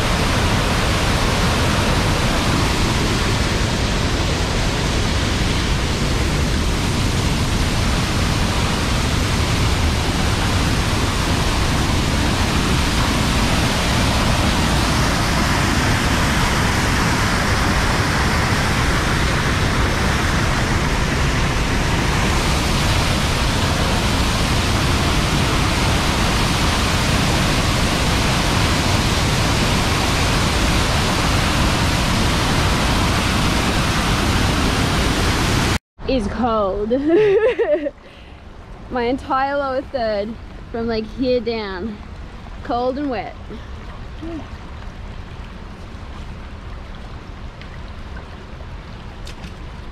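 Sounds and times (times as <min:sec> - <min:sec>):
waterfall rushing onto rocks: 0:00.0 - 0:35.8.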